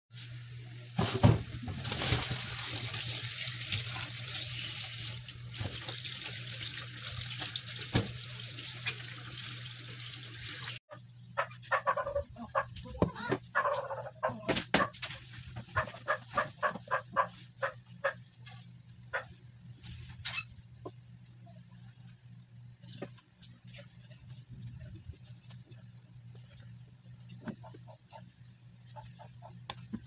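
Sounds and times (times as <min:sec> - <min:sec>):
tap water splashing in sink: 0:02.9 - 0:09.7.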